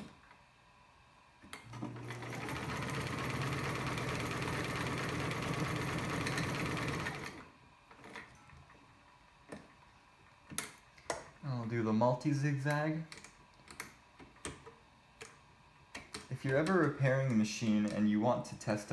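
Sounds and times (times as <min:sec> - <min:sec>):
sewing machine stitching: 0:01.7 - 0:08.2.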